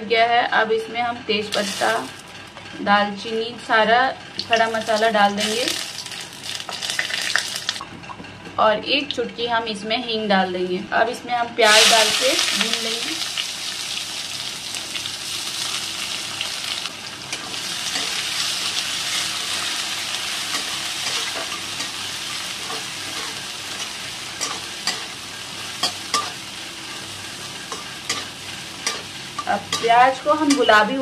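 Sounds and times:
onions sizzling in oil: 1.5 - 2.3, 4.4 - 7.8, 11.6 - 31.0.

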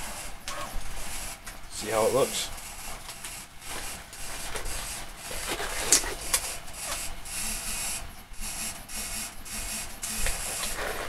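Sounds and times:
rubber gloves rubbing and stretching: 3.6 - 7.0, 10.2 - 11.0.

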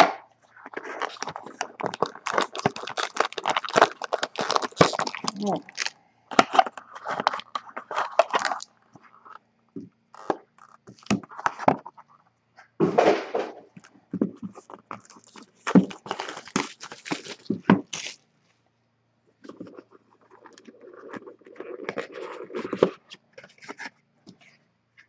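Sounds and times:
foil packs crinkling: 0.7 - 8.7, 14.5 - 18.2.

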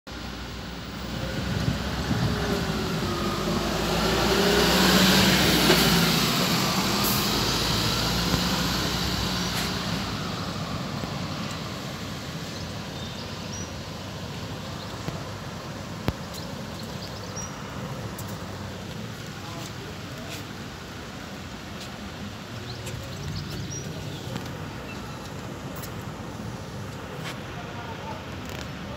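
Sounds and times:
traffic hum: 0.1 - 28.9
heavy vehicle passing: 0.9 - 12.4.

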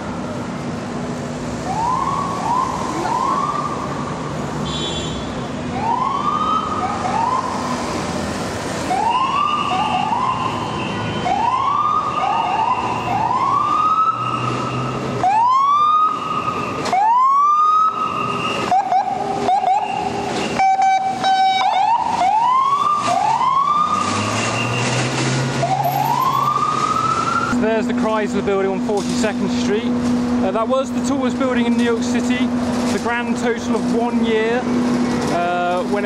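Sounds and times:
traffic noise: 0.0 - 36.0
emergency vehicle siren whooping: 1.6 - 4.3, 5.7 - 8.1, 8.8 - 27.6.

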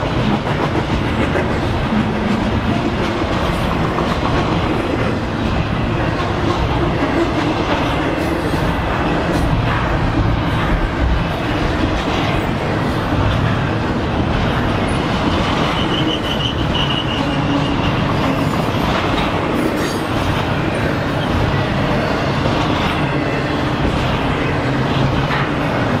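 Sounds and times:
train wheels rumbling on rail: 0.0 - 26.0
high wheel squeal: 15.6 - 18.5.

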